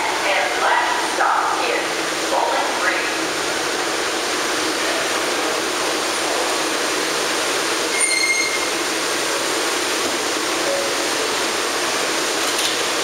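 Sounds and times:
subway train rushing noise: 0.0 - 13.0
brief high-pitched tone: 7.9 - 8.8.

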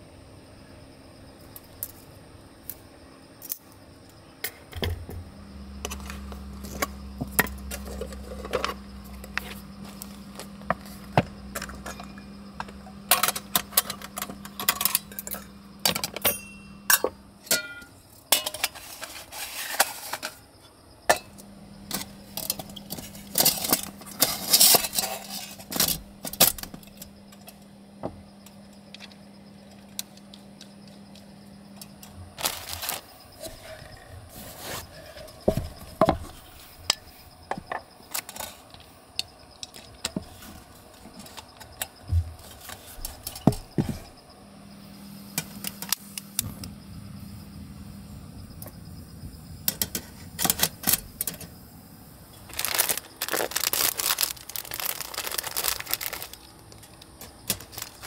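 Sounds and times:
metal cookware clinking: 13.1 - 18.8.

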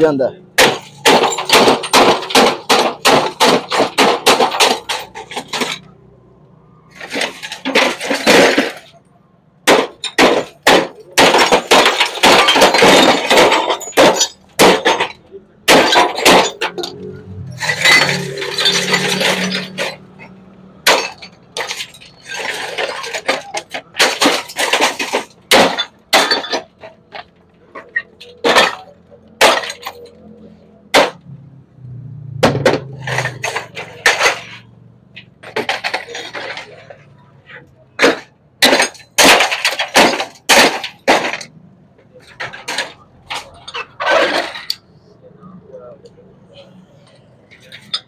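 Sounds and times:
broken pieces clattering in tub: 7.0 - 9.0, 9.7 - 16.9, 17.6 - 20.2, 20.8 - 27.2, 38.0 - 41.5.

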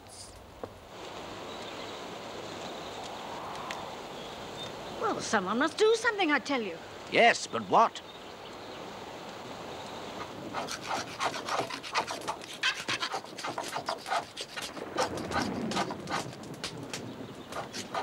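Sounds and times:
wood fire hissing: 0.0 - 5.4
knife carving wood: 10.6 - 16.4, 17.5 - 18.0.

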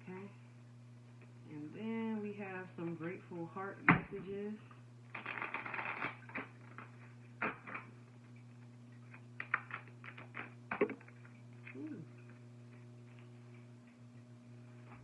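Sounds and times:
steady low hum: 0.0 - 15.0
cards being shuffled: 5.1 - 7.8.

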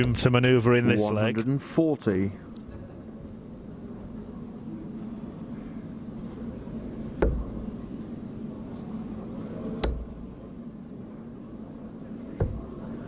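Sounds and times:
steady hum: 0.0 - 13.0
darts thudding into dartboard: 7.2 - 7.6, 12.4 - 12.8.

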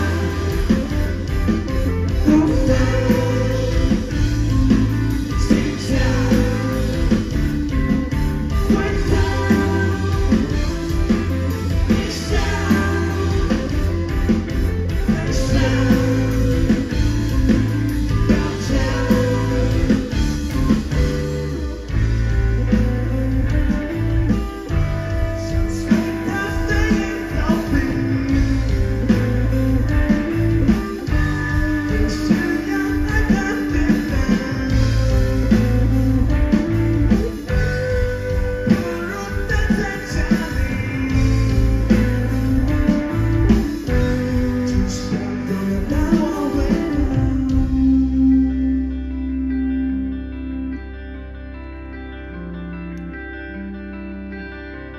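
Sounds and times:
drum kit: 0.0 - 48.2
electric guitars: 0.0 - 54.9.

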